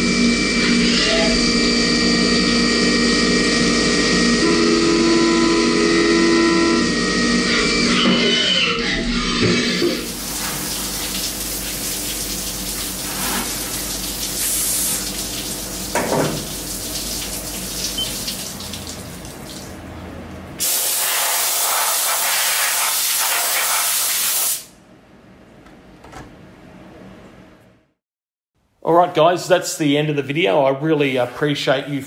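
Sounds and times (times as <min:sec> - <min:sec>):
low machine hum: 0:00.0 - 0:20.6
coolant spraying and splashing on metal: 0:09.9 - 0:19.8, 0:20.6 - 0:24.7.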